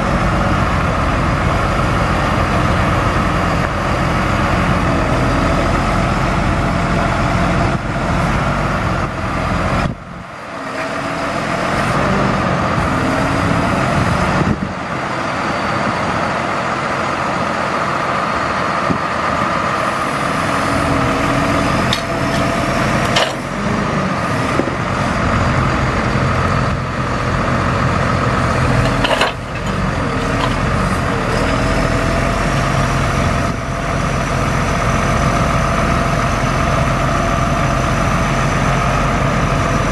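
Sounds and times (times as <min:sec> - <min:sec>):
truck engine whining: 0:00.0 - 0:39.9.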